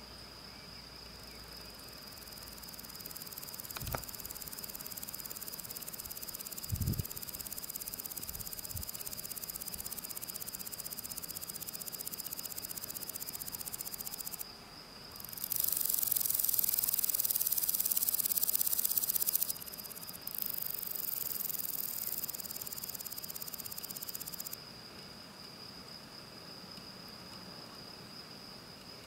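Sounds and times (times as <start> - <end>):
grasshopper stridulating: 1.2 - 24.7.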